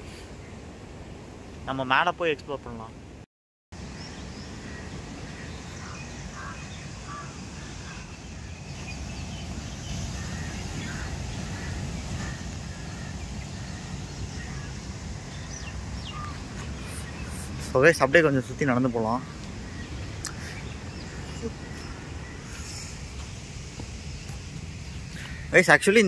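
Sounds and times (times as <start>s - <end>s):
steady rushing river noise: 3.8s - 26.0s
short bird calls: 4.0s - 17.7s.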